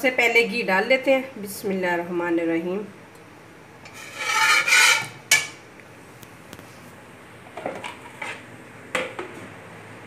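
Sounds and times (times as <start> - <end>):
spoon scraping metal pan: 3.8 - 5.6.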